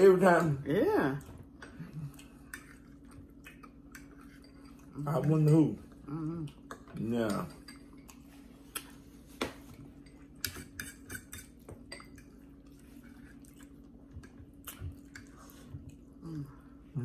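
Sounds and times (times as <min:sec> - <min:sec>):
forks clinking on plates: 0:03.7 - 0:05.8, 0:06.9 - 0:08.2, 0:09.9 - 0:12.4.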